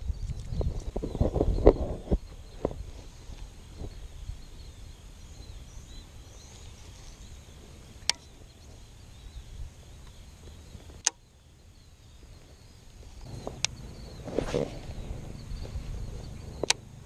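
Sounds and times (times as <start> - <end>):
faint high chirping: 0.0 - 17.0
sharp clicks: 11.0 - 11.2, 13.2 - 13.8, 16.6 - 16.8
low rumble: 12.6 - 17.0.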